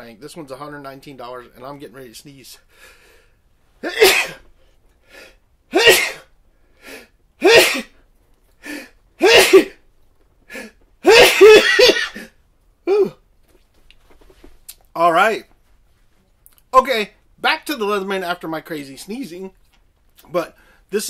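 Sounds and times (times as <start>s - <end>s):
quick breaths: 2.7s - 3.5s, 4.6s - 5.5s, 6.5s - 7.2s, 8.6s - 9.0s, 10.4s - 10.9s
man sneezing: 3.8s - 4.5s, 5.7s - 6.3s, 6.9s - 8.0s, 8.7s - 9.8s, 10.5s - 13.2s.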